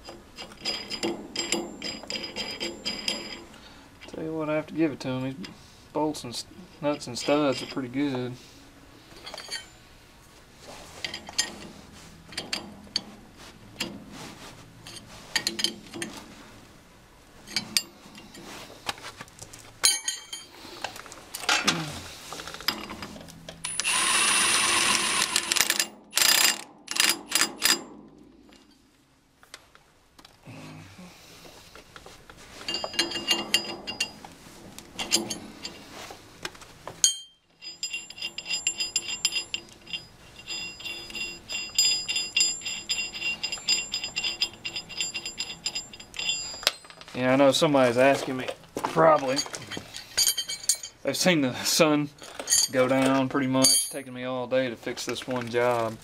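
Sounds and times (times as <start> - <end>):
metal clinks of wrench and socket: 19.8 - 20.5, 32.7 - 34.2, 37.0 - 47.0, 49.1 - 51.0, 52.2 - 54.1
hand ratchet clicking: 23.7 - 27.8.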